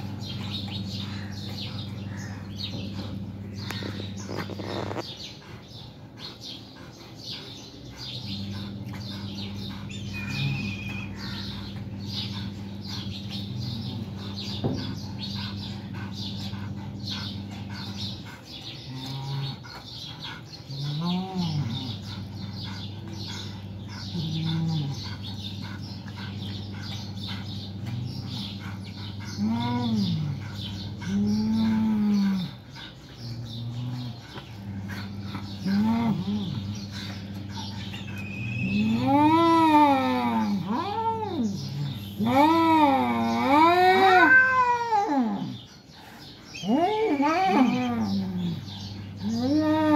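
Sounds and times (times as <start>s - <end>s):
cats growling: 0.0s - 49.9s
cats yowling: 33.8s - 45.6s, 46.6s - 49.9s.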